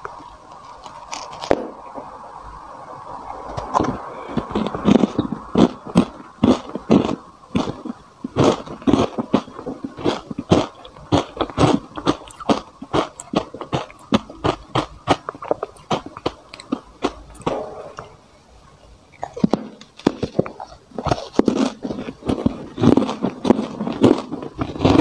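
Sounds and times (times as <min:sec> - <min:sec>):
plastic spoon scraping frozen ice: 0:19.4 - 0:25.0.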